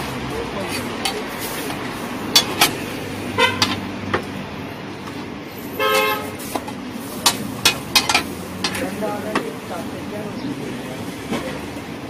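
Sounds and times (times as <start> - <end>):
street traffic hum: 0.0 - 12.0
metal spatula clanking on griddle: 2.3 - 2.8, 3.6 - 3.8, 6.0 - 9.5
vehicle horn toot: 3.4 - 3.7, 5.7 - 6.4.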